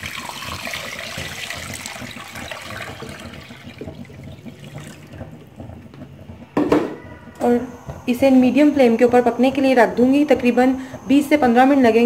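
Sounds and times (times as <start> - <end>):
water pouring into metal pot: 0.0 - 6.5.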